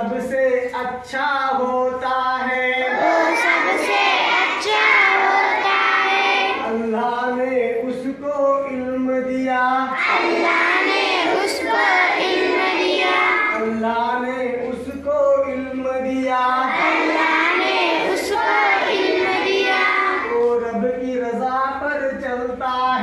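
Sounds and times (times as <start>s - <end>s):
children singing together: 2.8s - 6.8s, 9.8s - 13.7s, 16.6s - 20.5s.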